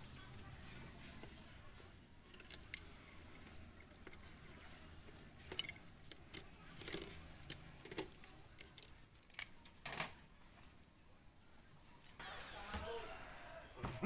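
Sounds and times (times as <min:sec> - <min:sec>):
metal parts and screws clicking: 0:02.2 - 0:10.1.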